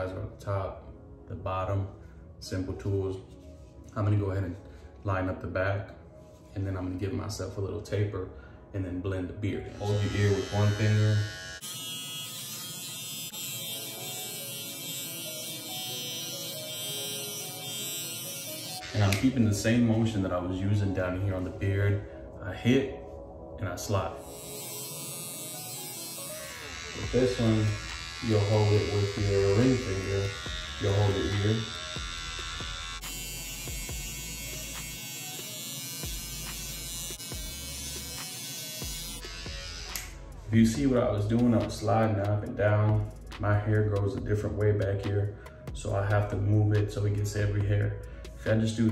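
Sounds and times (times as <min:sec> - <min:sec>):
hair trimmer buzzing: 0:09.6 - 0:19.6, 0:24.2 - 0:40.3.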